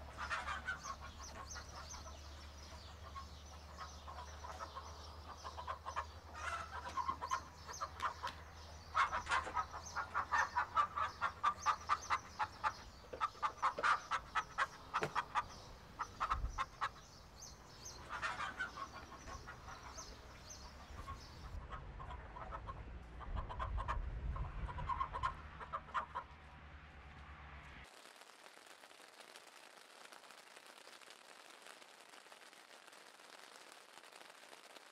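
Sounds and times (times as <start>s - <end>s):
chickens clucking: 0.0s - 17.1s, 17.8s - 26.4s.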